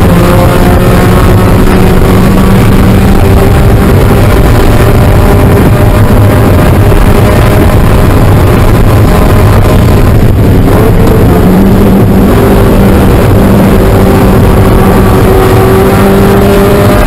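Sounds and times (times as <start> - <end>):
race car engine revving high: 0.0 - 17.0
wind and road noise: 0.0 - 17.0.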